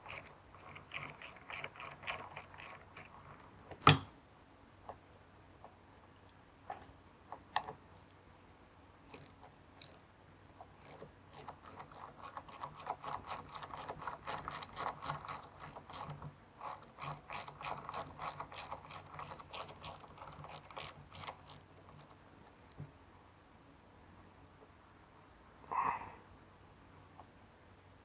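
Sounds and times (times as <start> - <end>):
ratchet wrench clicking: 9.1 - 10.0, 10.8 - 22.1.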